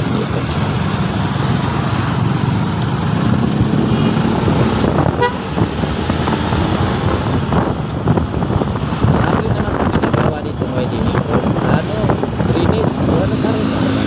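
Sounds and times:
motorcycle engine and road noise: 0.0s - 14.0s
motorcycle horn toot: 5.1s - 5.6s.

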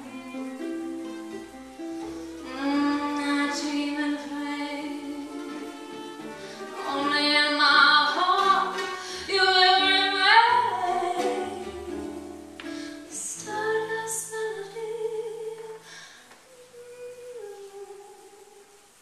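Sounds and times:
plucked upright bass: 0.0s - 13.8s
woman singing jazz ballad: 2.3s - 19.0s.

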